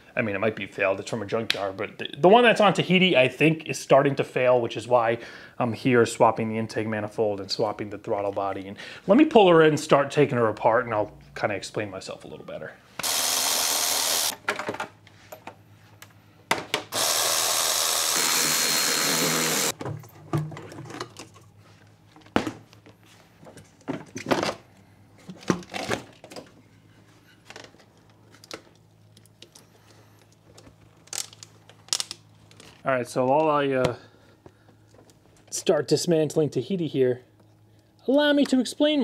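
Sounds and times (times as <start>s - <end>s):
electric ratchet spinning bolts: 13.0s - 14.4s, 16.9s - 19.8s.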